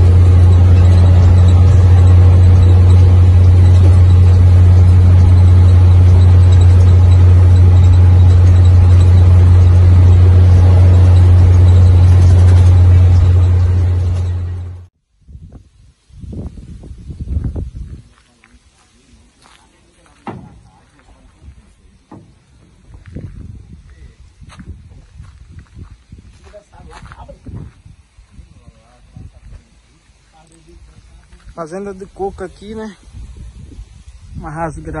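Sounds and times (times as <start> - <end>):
road noise: 0.0 - 14.9, 16.8 - 35.0
truck diesel engine drone: 0.0 - 14.9.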